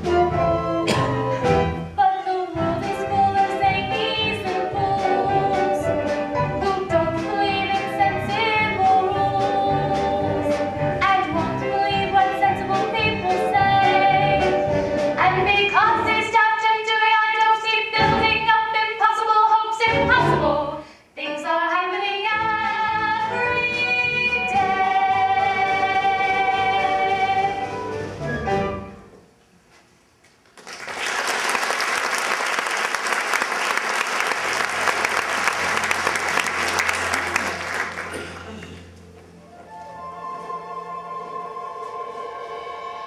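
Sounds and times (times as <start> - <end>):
women singing: 2.0 - 27.7
audience applause: 30.6 - 38.7.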